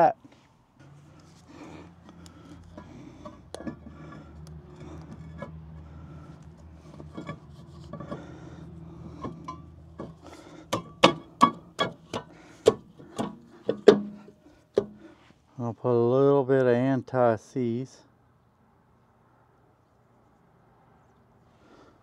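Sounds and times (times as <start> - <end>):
steady low hum: 0.0 - 15.5
light metal scraping and clinking: 2.6 - 6.0, 6.7 - 8.4, 9.0 - 12.3
sharp metallic knocks: 9.2 - 15.0.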